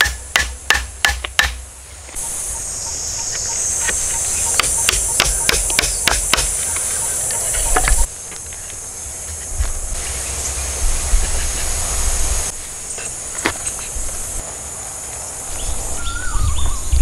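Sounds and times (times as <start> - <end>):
hatchet striking wooden poles: 0.0 - 2.2, 3.8 - 6.9
high-pitched insect drone: 2.2 - 16.5.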